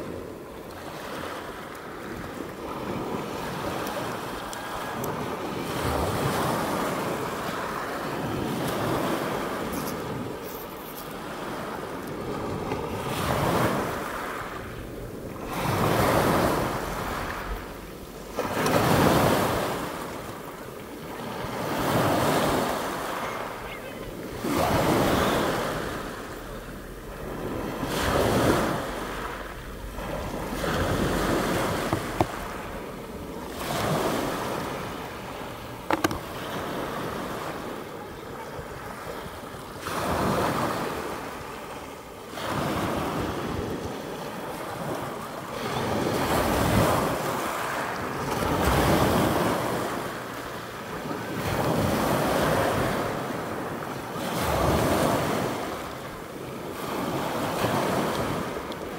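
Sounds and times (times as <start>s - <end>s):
sea surf washing: 0.0s - 58.9s
wind buffeting microphone: 1.9s - 41.6s.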